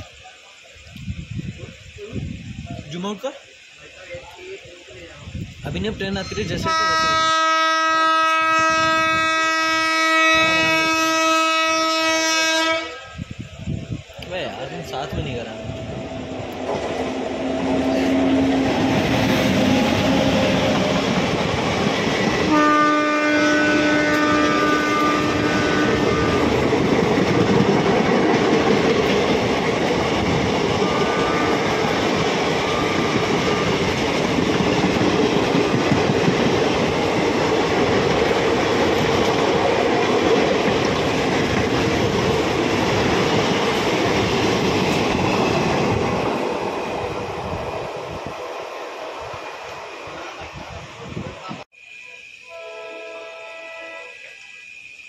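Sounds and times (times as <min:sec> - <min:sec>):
train wheels rattling on rail: 0:00.0 - 0:51.7
locomotive horn: 0:06.6 - 0:13.2, 0:22.5 - 0:26.6, 0:30.8 - 0:31.8, 0:52.4 - 0:54.2.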